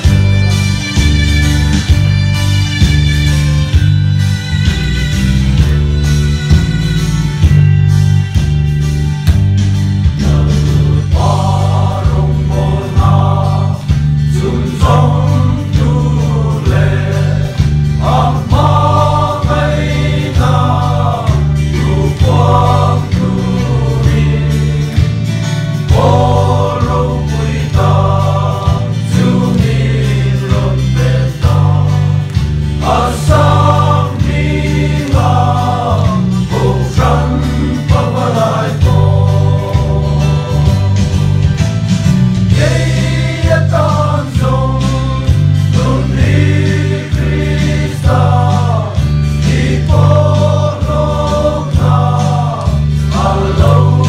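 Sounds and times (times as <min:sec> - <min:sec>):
deep bass line: 0:00.0 - 0:54.0
instrumental accompaniment: 0:00.0 - 0:54.0
men singing a hymn: 0:10.2 - 0:41.4, 0:42.5 - 0:54.0.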